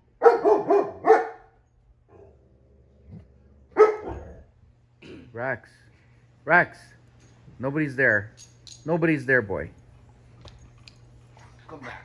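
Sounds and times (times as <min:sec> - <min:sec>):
dog sharp bark: 0:00.2 - 0:01.5, 0:03.8 - 0:04.3
dog groan-barking: 0:02.1 - 0:04.5.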